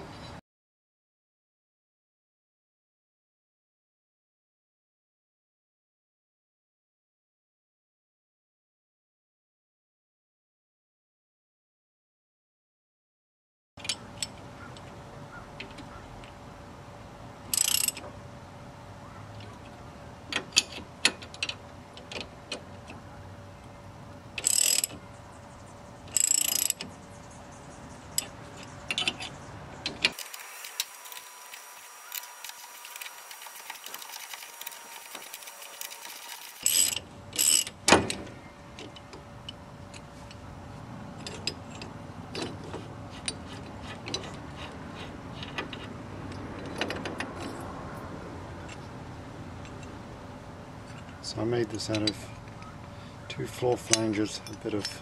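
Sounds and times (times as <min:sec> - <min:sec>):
metal tools clicking and clinking: 0:17.5 - 0:18.0, 0:24.4 - 0:25.0, 0:26.0 - 0:26.9, 0:28.1 - 0:38.2, 0:41.2 - 0:47.7, 0:51.8 - 0:52.7, 0:53.7 - 0:55.0.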